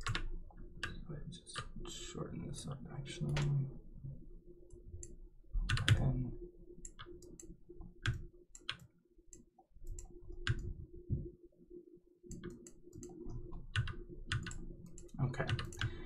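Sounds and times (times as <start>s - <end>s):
computer mouse clicking: 0.0s - 1.0s, 4.7s - 6.1s, 6.8s - 10.8s, 12.3s - 16.0s.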